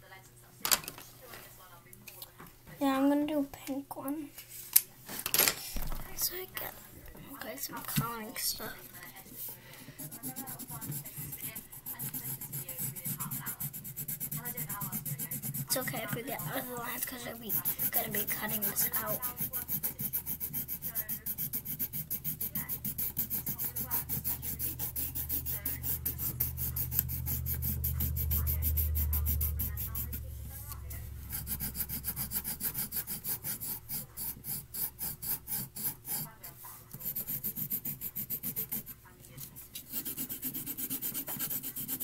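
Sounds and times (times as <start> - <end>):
pencil scribbling on paper: 7.4 - 42.0
low hum: 22.8 - 33.9.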